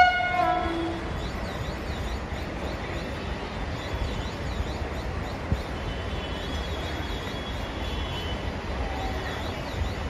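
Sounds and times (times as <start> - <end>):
train horn: 0.0 - 1.0
train low rumble: 0.0 - 7.8.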